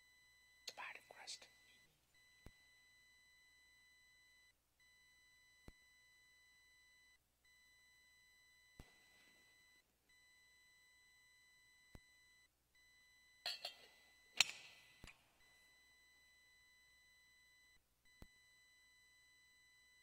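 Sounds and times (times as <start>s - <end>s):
metal vessels clinking: 13.5s - 14.8s.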